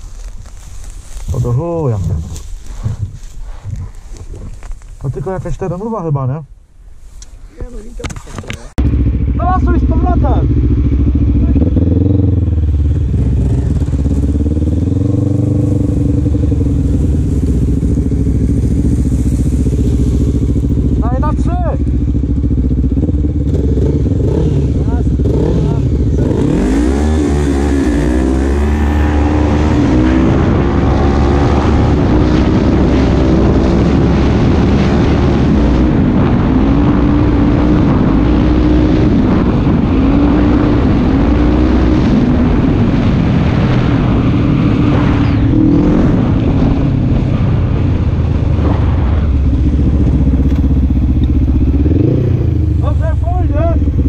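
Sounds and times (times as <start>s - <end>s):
wind rumble on microphone: 0.0s - 54.0s
quad bike engine revving: 8.8s - 43.0s, 43.8s - 46.9s, 48.5s - 54.0s.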